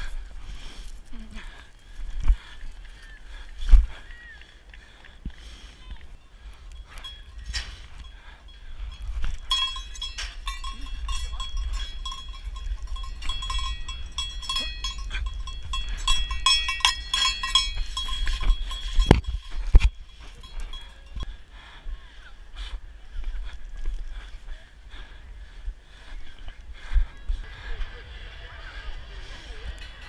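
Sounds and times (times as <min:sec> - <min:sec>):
cowbell rung rapidly: 0:06.9 - 0:21.2.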